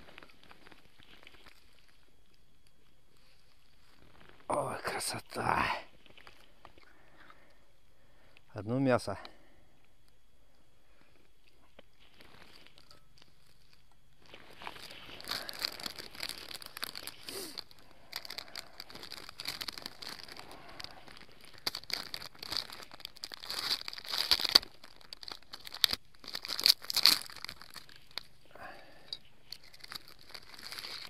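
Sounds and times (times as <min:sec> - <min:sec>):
wrapper crinkling and crackling: 0:12.0 - 0:28.4, 0:29.3 - 0:31.0
knife slitting wrapper: 0:14.6 - 0:28.3, 0:29.5 - 0:31.0.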